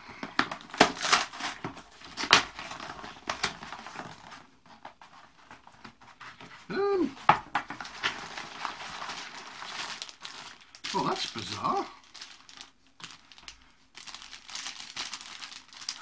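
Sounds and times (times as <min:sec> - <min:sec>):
cardboard box ripping and rustling: 0:00.4 - 0:04.5, 0:07.7 - 0:11.7
person humming: 0:06.7 - 0:07.2.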